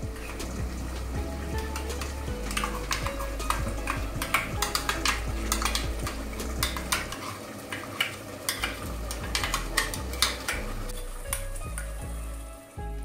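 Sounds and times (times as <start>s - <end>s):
faint sizzle: 0.0s - 13.0s
spoon scraping cooking pot: 1.6s - 11.5s.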